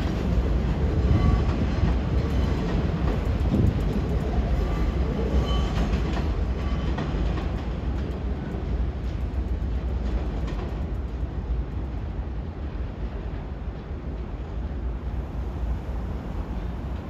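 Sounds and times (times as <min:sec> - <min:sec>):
wheels clicking over rail joints: 0:00.0 - 0:12.5
subway train rumbling: 0:00.0 - 0:17.0.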